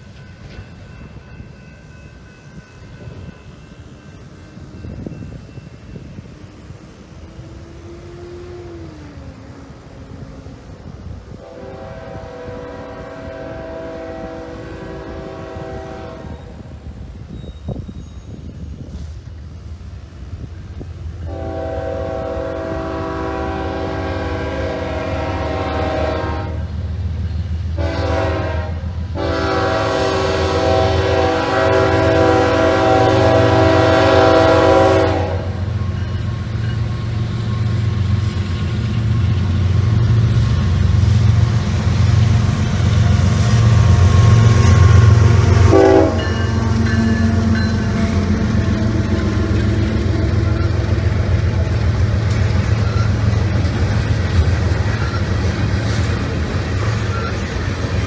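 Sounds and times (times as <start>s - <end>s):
locomotive air horn: 11.3s - 16.6s, 21.2s - 26.7s, 27.8s - 35.8s, 43.6s - 51.8s
diesel engines rumbling: 32.1s - 58.0s
freight cars rattling on rails: 32.1s - 58.0s.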